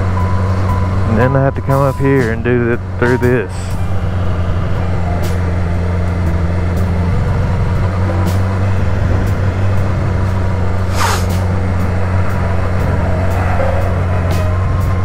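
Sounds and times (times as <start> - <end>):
motorcycle engine running: 0.0 - 15.0
brief rushing burst: 10.9 - 11.4.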